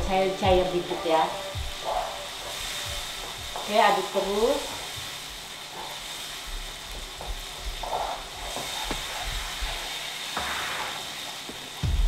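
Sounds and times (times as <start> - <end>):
sauce sizzling in frying pan: 0.0 - 12.0
spatula tapping pan: 1.6 - 6.2, 6.9 - 9.6.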